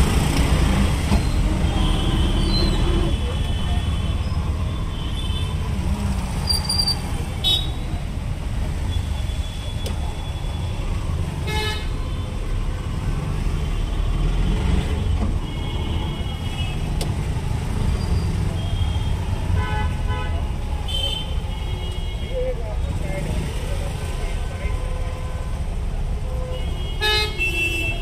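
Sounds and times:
traffic engine rumble: 0.0 - 28.0
vehicle horns tooting: 26.4 - 28.0.

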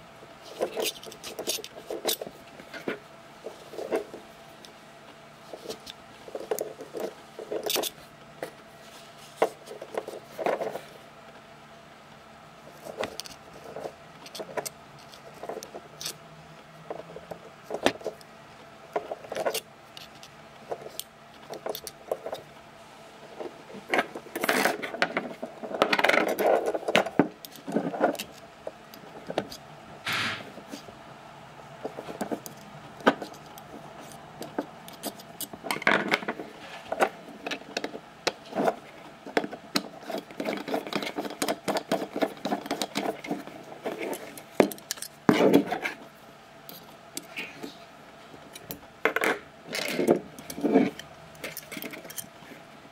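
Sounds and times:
small metal clicks and scrapes: 0.4 - 4.8, 5.5 - 8.5, 12.7 - 16.2, 18.9 - 22.5, 23.4 - 29.6, 31.8 - 46.1, 48.5 - 52.4.

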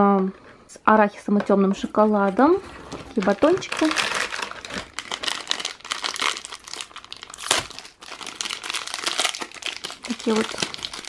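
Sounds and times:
plastic wrapper crinkling: 2.3 - 11.0.

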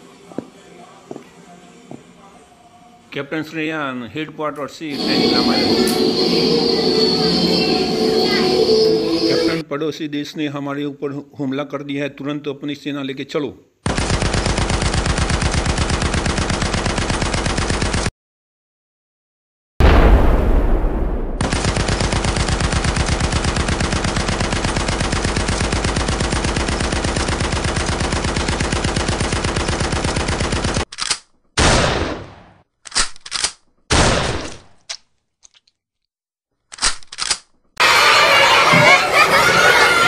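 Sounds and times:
automatic machine-gun fire: 13.8 - 18.1, 21.2 - 30.9
heavy boom: 19.8 - 21.6.

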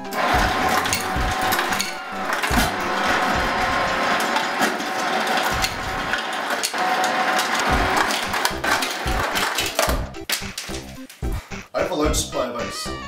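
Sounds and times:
ice dispenser motor whirring: 0.0 - 10.0
ice cubes clattering into glass: 0.6 - 3.1, 3.9 - 9.9.

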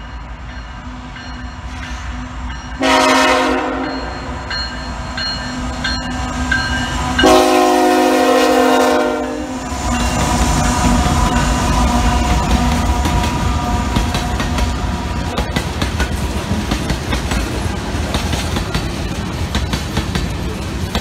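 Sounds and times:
locomotive engine rumble: 0.0 - 21.0
locomotive air horn blasts: 2.8 - 4.4, 7.2 - 9.6.

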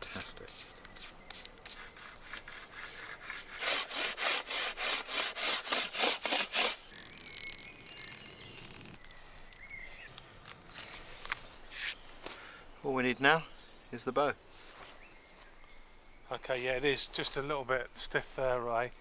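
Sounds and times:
rhythmic scraping on wood: 0.0 - 9.0.

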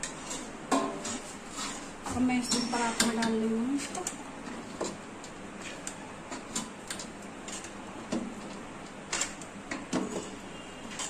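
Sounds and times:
metal spatula scraping steel pan: 0.0 - 3.2.

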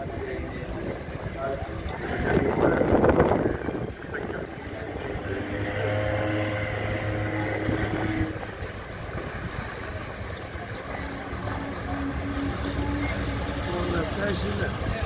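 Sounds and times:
wind on microphone: 0.0 - 13.6
boat engines humming: 0.0 - 15.0
ship's horn low blast: 1.8 - 8.9, 10.8 - 14.9.

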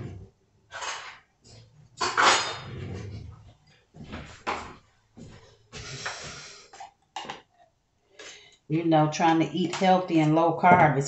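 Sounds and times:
utensils clattering and scraping: 0.0 - 3.4.

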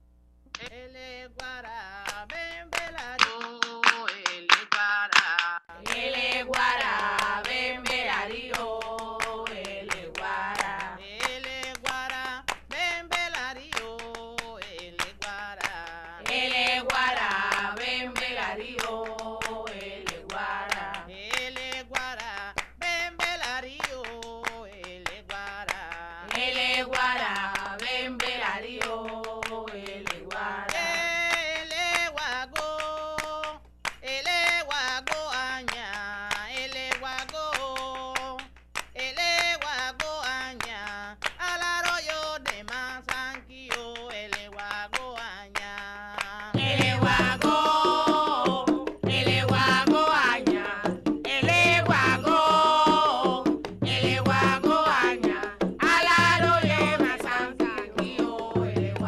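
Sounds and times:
person singing a chant: 0.6 - 45.6, 46.2 - 59.0
percussive strikes: 46.6 - 59.0.

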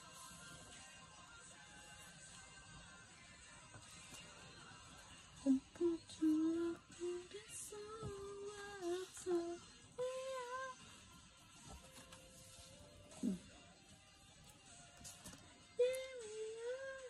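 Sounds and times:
person singing a melody: 0.0 - 11.0, 13.1 - 13.6, 15.2 - 17.0
faint background music: 0.0 - 17.0.

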